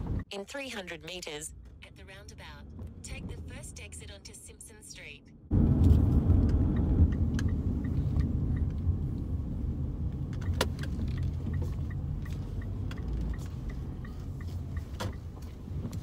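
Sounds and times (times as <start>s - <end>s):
car cabin road and engine rumble: 0.0s - 16.0s
light regular ticking: 6.4s - 16.0s.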